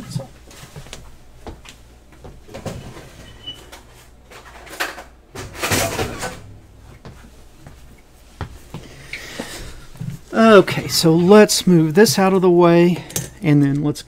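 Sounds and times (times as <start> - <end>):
knocks and clunks of rummaging: 4.3 - 7.4.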